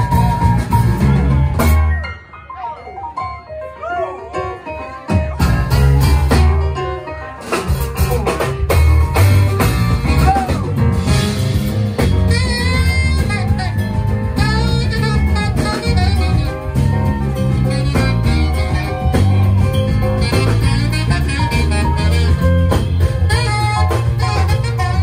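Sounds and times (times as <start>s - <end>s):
electric bass: 0.0s - 2.0s, 5.3s - 6.9s, 7.6s - 25.0s
drum kit: 0.0s - 2.2s, 4.4s - 25.0s
electric keyboard: 0.0s - 25.0s
saxophone: 9.1s - 25.0s.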